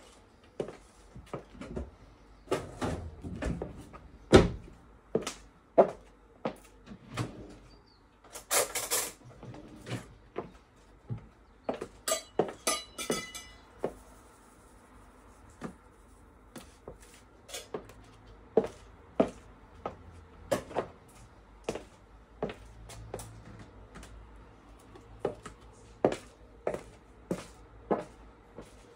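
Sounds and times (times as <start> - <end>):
cupboard opening and closing: 2.5 - 4.7, 6.8 - 7.7, 8.4 - 10.2
dishes and cutlery clinking: 12.0 - 13.7.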